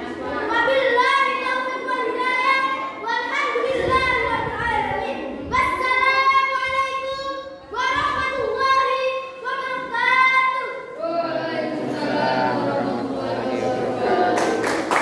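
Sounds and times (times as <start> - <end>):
low indistinct voice: 11.0 - 14.7.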